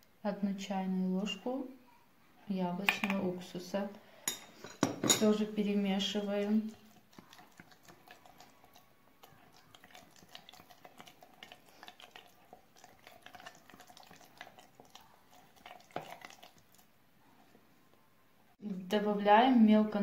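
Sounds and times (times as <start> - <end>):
spatula stirring paste in jar: 4.3 - 17.7.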